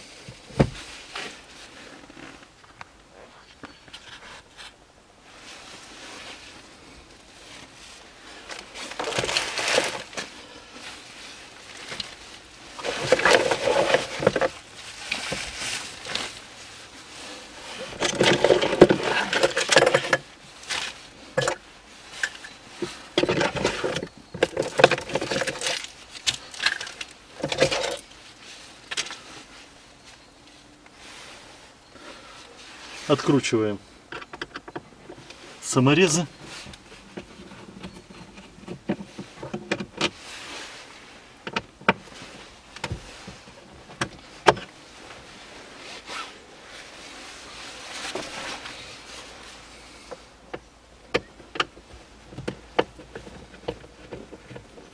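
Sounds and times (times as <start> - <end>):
loose items scraping and knocking: 8.5 - 10.4, 11.7 - 16.4, 17.3 - 28.1.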